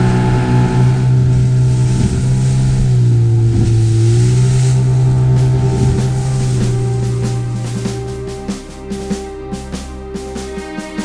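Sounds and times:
outboard motor running: 0.0 - 9.3
water and wind rushing: 0.0 - 11.0.

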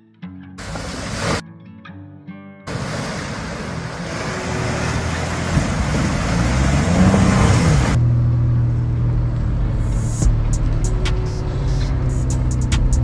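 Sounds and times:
engine revving: 2.7 - 13.0
engine running at low pitch: 2.7 - 13.0.

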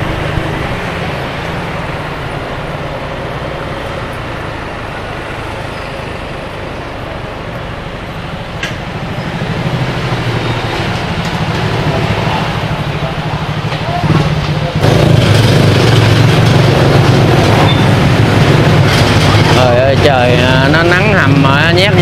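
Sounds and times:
other motorbikes: 0.0 - 22.0
wind and road noise: 0.0 - 22.0
motorbike engine running: 6.5 - 22.0.

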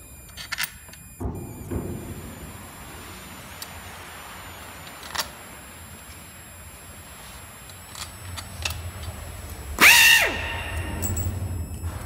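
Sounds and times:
metal and plastic parts clicking: 0.2 - 1.1
loud burst of noise: 1.2 - 12.0.

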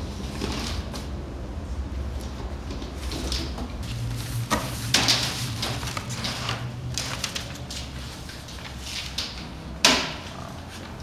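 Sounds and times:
rustling plastic wrap and paper: 3.9 - 9.4.

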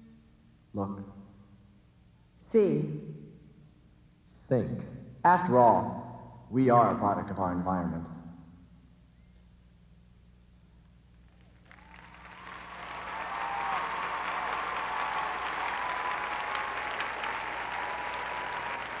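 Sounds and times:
crowd applauding: 11.4 - 19.0
crowd cheering: 11.4 - 19.0.

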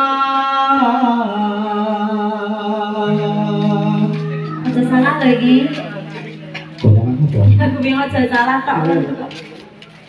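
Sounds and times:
man singing through pa: 0.0 - 4.6.

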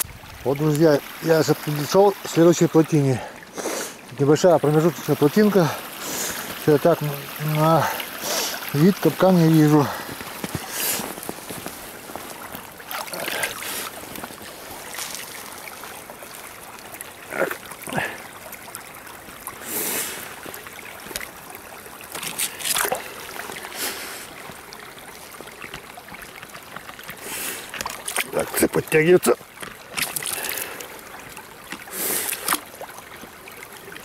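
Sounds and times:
water trickling: 0.0 - 34.0
stick splashing in water: 22.1 - 23.6, 27.7 - 28.6, 29.6 - 30.8, 31.7 - 32.8.

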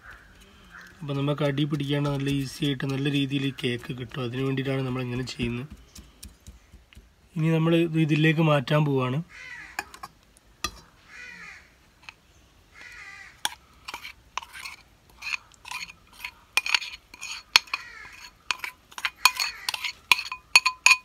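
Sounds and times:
spoon scraping a ceramic bowl: 1.6 - 5.6, 13.4 - 21.0
crow cawing: 9.3 - 10.0, 10.8 - 11.8, 12.7 - 13.6, 17.5 - 18.5, 19.2 - 19.9.

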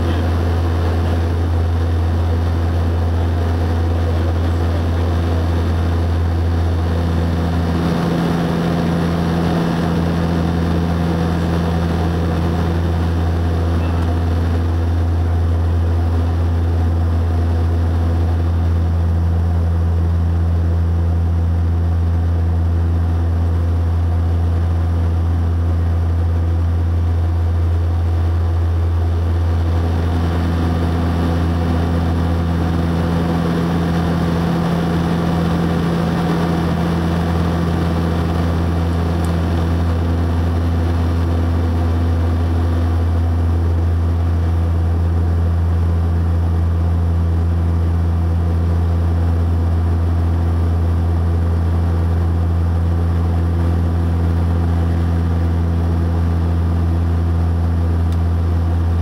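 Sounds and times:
high engine tone: 0.0 - 15.5
propeller plane engine drone: 0.0 - 59.0.

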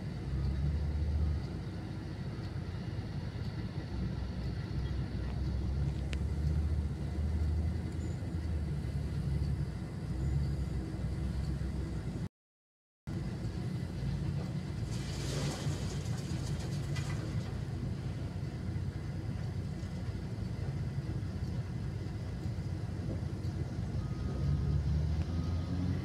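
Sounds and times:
diesel engine rumbling: 0.0 - 12.3, 13.1 - 26.0
high beeps: 24.0 - 26.0.

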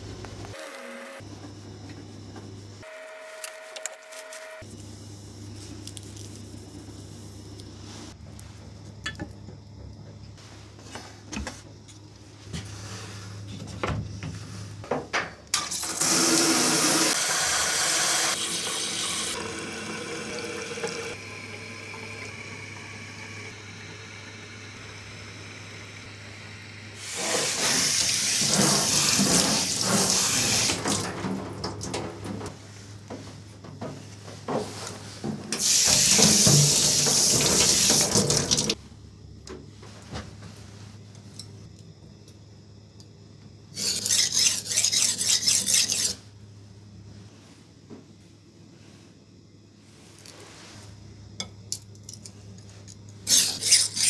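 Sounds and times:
water spraying into sink: 15.6 - 23.4, 27.0 - 31.1, 35.6 - 38.8
knife scraping on whetstone: 43.8 - 46.2, 53.3 - 54.0.

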